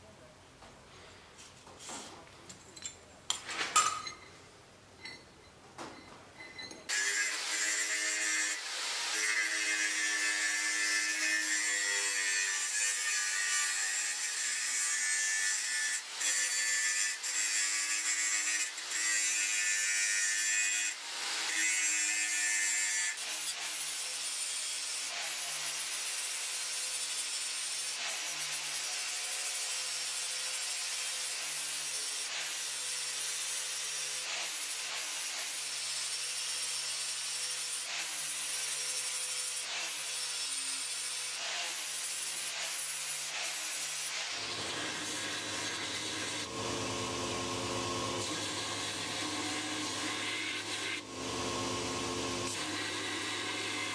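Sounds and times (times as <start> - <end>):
angle grinder grinding steel: 6.4 - 53.9
angle grinder with flap disc: 37.4 - 53.9.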